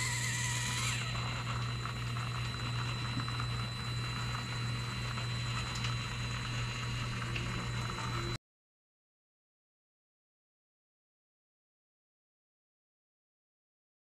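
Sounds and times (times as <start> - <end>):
small electric motor whining: 0.0 - 5.7.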